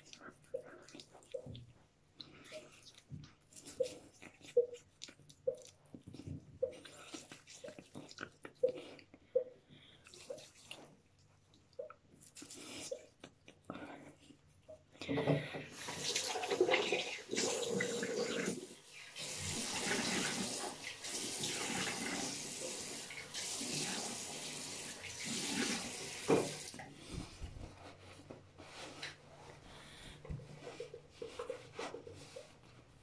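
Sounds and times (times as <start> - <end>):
water dripping: 4.6 - 8.8.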